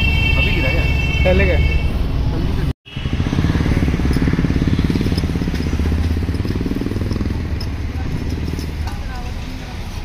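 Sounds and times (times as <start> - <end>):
vehicle engine running: 2.9 - 10.0.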